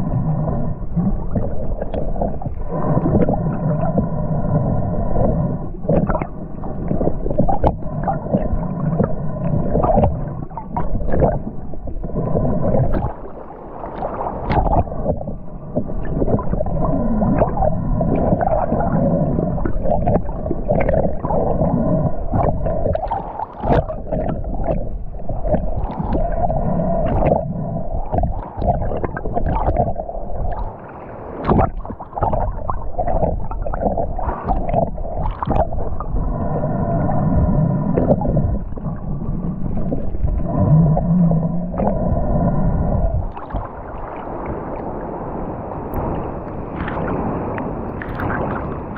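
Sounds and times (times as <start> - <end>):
steady hum: 0.0 - 13.4, 31.4 - 44.0
underwater gurgling and bubbles: 0.0 - 48.9.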